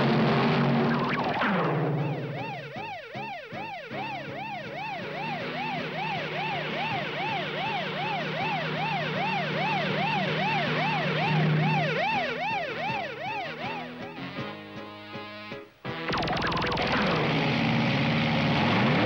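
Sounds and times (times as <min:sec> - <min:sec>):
cartoon siren warbling: 0:00.6 - 0:14.1, 0:16.1 - 0:17.6.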